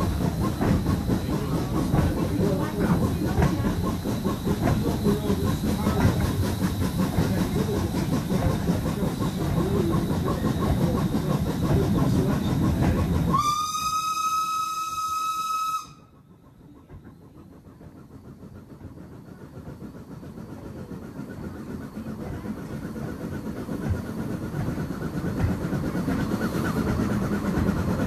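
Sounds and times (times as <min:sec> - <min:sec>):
train rumble and clatter: 0:00.0 - 0:28.0
steam locomotive whistle: 0:13.3 - 0:16.2.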